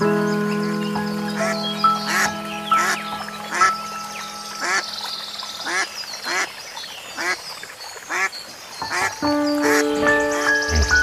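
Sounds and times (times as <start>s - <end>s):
background music with held tones: 0.0s - 6.4s, 8.8s - 11.0s.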